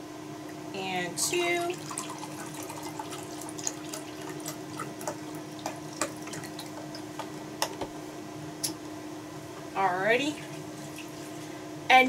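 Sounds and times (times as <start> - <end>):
steady low hum: 0.0 - 12.0
broth pouring and splashing: 1.6 - 7.3, 10.5 - 11.5.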